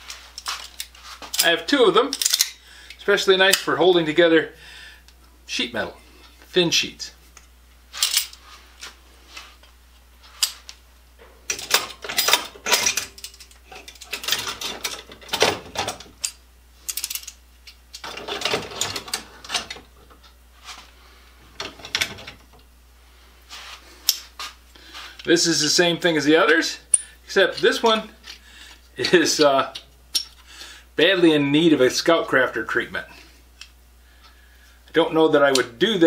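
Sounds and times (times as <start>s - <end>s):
metal clamps clicking and rattling: 0.4s - 2.6s, 11.5s - 20.3s, 21.6s - 22.6s.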